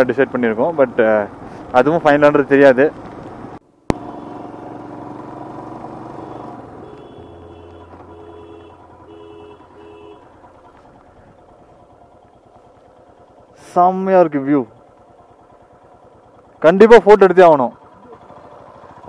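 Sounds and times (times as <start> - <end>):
motorcycle engine running: 0.0 - 19.0
short electronic beeps: 6.0 - 8.7.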